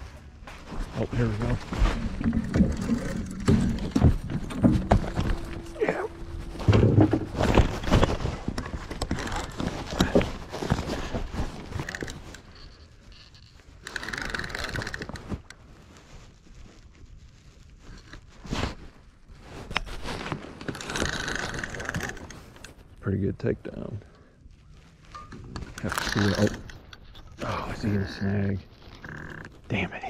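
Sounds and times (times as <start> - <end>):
clothing rustling: 0.0 - 23.0
fishing reel turning: 11.8 - 15.2.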